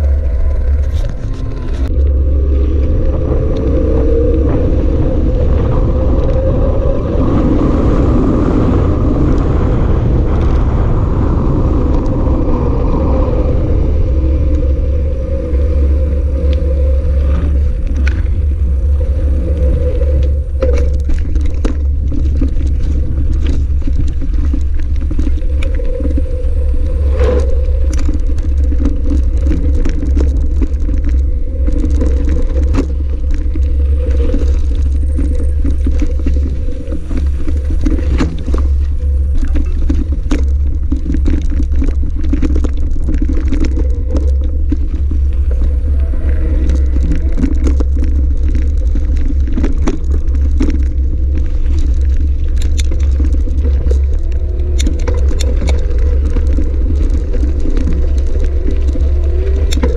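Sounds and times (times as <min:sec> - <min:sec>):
bike rattling over rough ground: 0:00.0 - 0:59.9
bike tyres on tarmac: 0:00.0 - 0:59.9
wind on microphone: 0:00.0 - 0:59.9.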